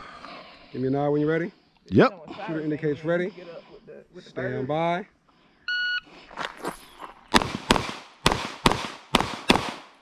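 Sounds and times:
pistol shots with echo: 7.3s - 10.0s.

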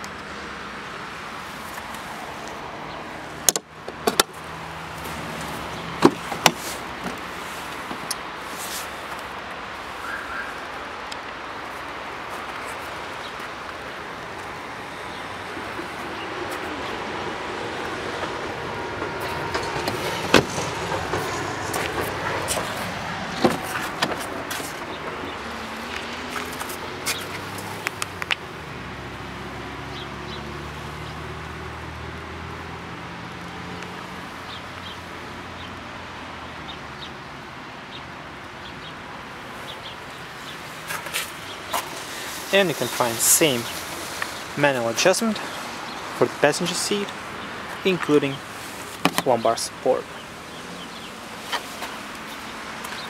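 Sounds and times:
motor vehicle noise: 0.0s - 53.0s
sharp clicks and knocks: 3.5s - 4.4s.

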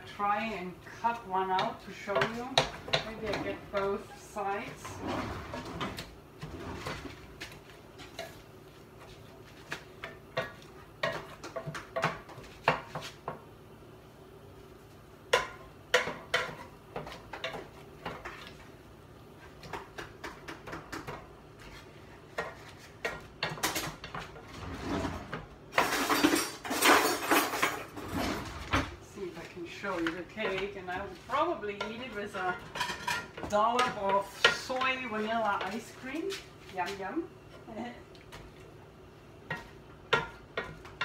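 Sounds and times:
utensils clattering: 24.6s - 28.7s.

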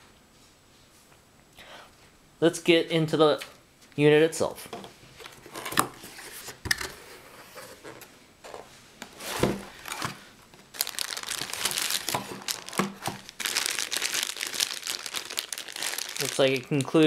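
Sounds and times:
plastic bags crinkling: 9.7s - 17.0s.

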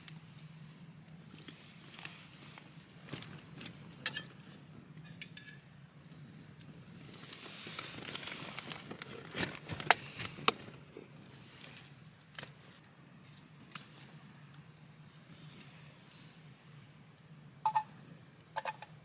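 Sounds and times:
soft hiss: 0.0s - 19.0s.

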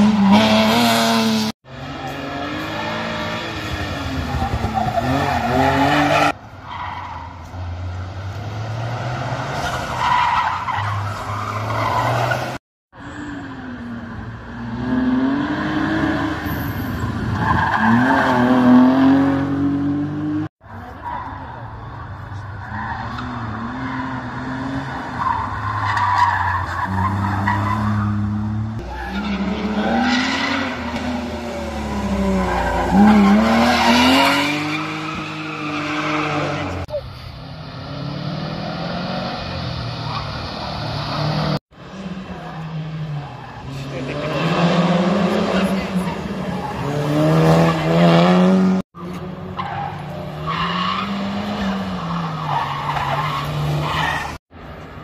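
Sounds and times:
tires squealing: 0.0s - 54.4s
race car engines revving: 0.0s - 55.0s
race car engine revving: 40.7s - 52.4s.

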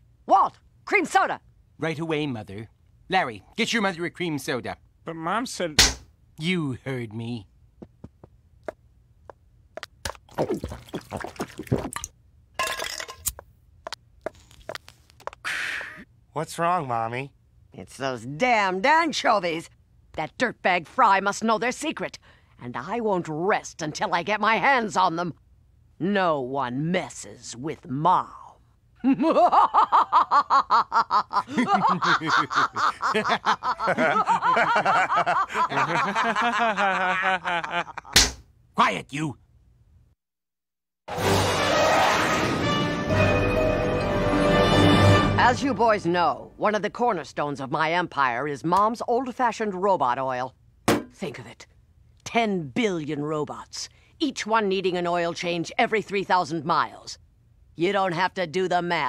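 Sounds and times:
liquid pouring: 10.3s - 13.1s
men laughing: 29.0s - 38.2s
old woman cackling laugh: 29.0s - 38.2s.

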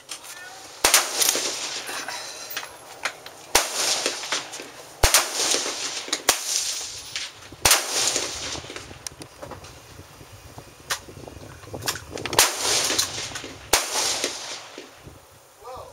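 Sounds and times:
rifle shots with rolling echo: 0.7s - 2.1s, 3.5s - 9.0s, 12.3s - 15.0s.

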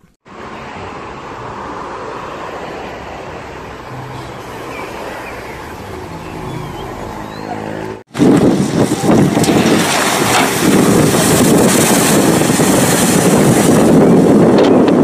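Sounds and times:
bus engine running: 3.2s - 14.9s
rush of water: 8.1s - 15.0s
wind buffeting microphone: 8.1s - 15.0s.

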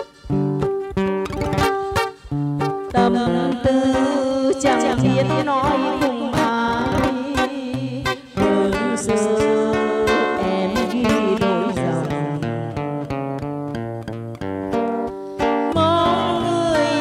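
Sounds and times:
acoustic guitar picking: 0.0s - 17.0s
woman singing a ballad: 2.9s - 12.8s, 15.7s - 17.0s.

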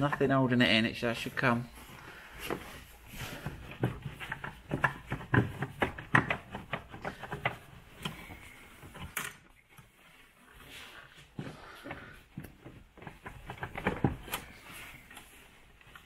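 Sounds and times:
plastic clicks and knocks: 3.5s - 8.3s, 12.4s - 14.5s.

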